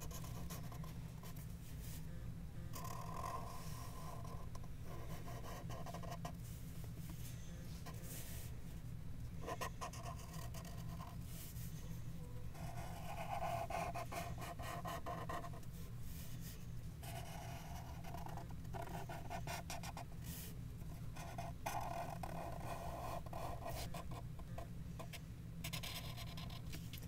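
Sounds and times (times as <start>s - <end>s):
steady low hum: 0.0s - 27.0s
marker rubbing across paper: 2.8s - 8.5s, 9.4s - 11.7s, 12.6s - 20.5s, 21.2s - 24.2s, 25.0s - 26.6s.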